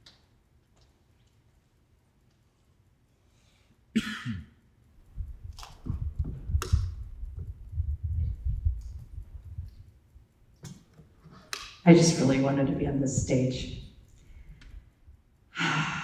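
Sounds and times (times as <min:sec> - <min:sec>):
microphone handling noise: 0:05.1 - 0:09.8.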